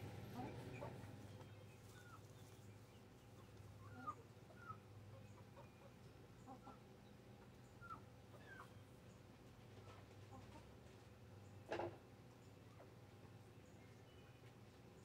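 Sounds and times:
hens clucking: 0.0 - 8.8, 9.6 - 13.4.

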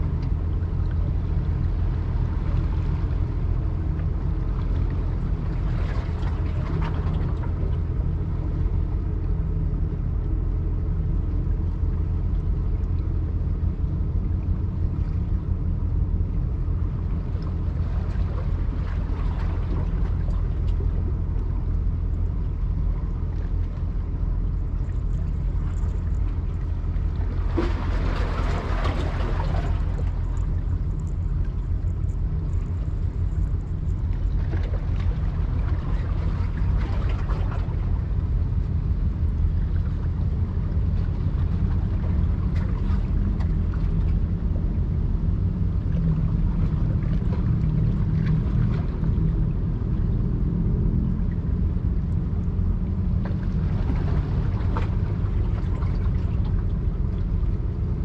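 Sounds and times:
boat engine rumble: 0.0 - 58.0
water rushing and splashing: 14.9 - 58.0.

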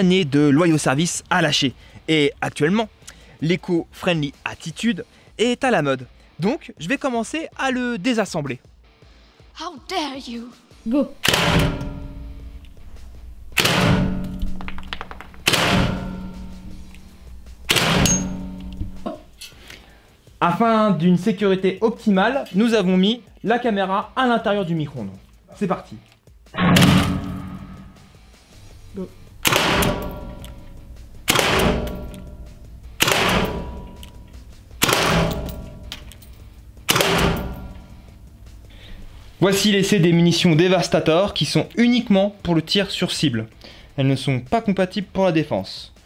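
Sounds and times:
gunshots ringing indoors: 11.2 - 12.6, 13.2 - 19.0, 26.6 - 28.0, 29.4 - 36.2, 36.8 - 38.1
gunshot crack with ringing echo: 26.6 - 28.0.

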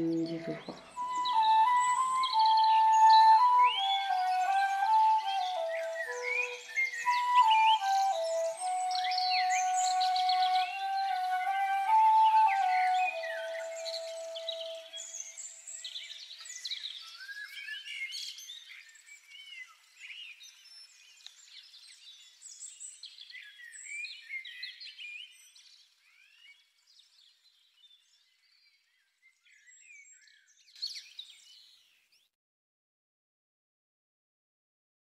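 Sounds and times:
held music note: 0.0 - 2.3
small birds chirping and singing: 0.0 - 32.3.

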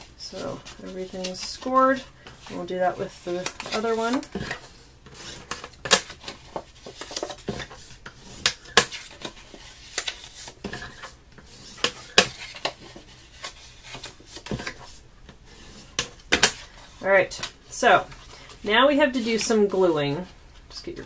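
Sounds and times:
paper crackling and scraping: 0.0 - 16.0.

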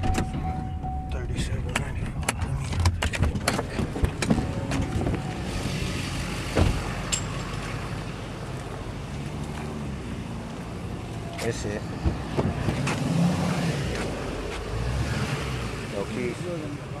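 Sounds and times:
vehicle door clicks and knocks: 0.0 - 1.1, 1.7 - 5.3
vehicle engine idling hum: 0.2 - 12.8
thump: 6.6 - 6.8.

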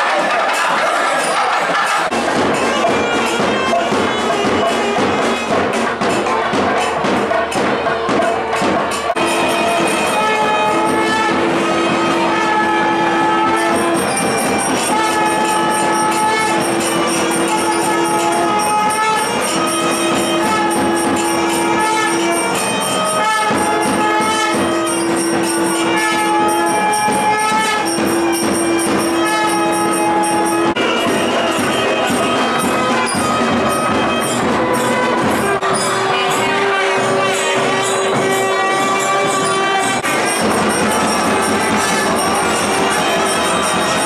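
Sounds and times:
jingling bells: 0.0 - 44.0
percussion: 0.0 - 44.0
wind instrument long note: 9.1 - 44.0.

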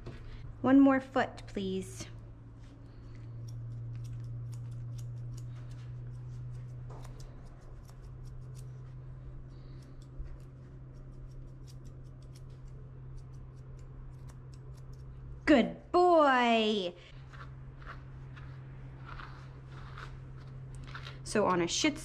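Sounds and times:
steady low hum: 0.0 - 22.0
scissors snipping fur: 2.0 - 15.4.

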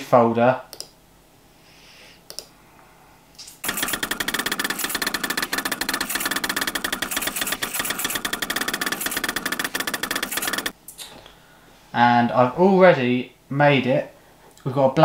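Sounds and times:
stepper motors chattering: 3.6 - 10.7.

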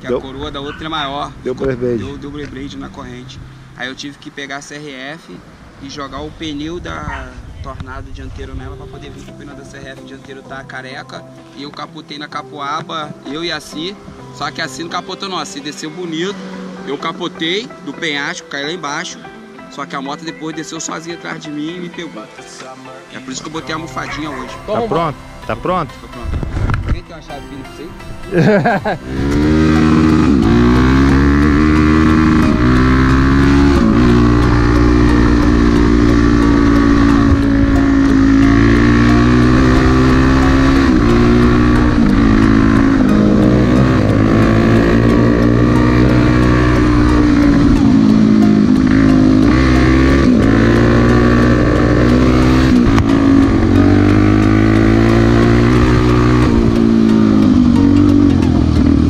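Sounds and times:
motorcycle engine revving: 13.3 - 17.6, 28.3 - 59.0.

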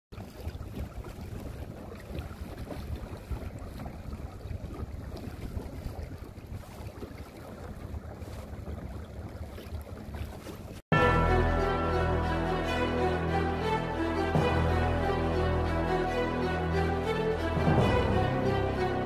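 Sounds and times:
waves lapping against boat hull: 0.1 - 10.8
wind buffeting microphone: 0.2 - 10.8.

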